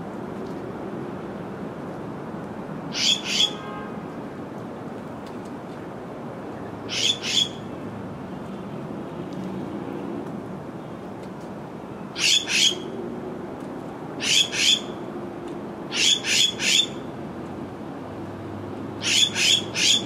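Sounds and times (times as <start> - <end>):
songbird calling: 6.9 - 7.6.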